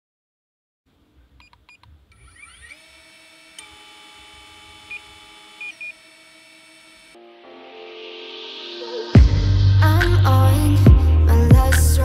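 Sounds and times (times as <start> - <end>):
drone motors whining: 2.1 - 7.2.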